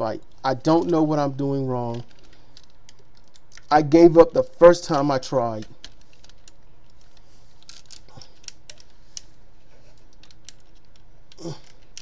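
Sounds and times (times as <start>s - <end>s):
plastic toy parts clicking: 4.8s - 9.3s, 10.0s - 12.0s.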